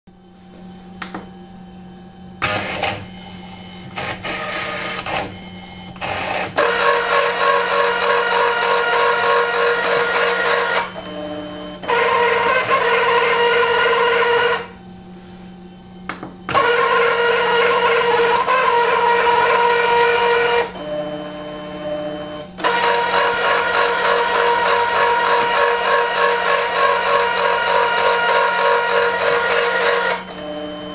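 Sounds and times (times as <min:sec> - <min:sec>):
motor whining: 0:02.4 - 0:14.8, 0:16.4 - 0:30.9.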